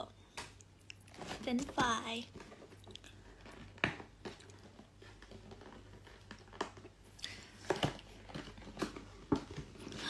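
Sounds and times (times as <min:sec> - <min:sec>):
food crunching: 0:00.6 - 0:01.3, 0:02.7 - 0:09.0.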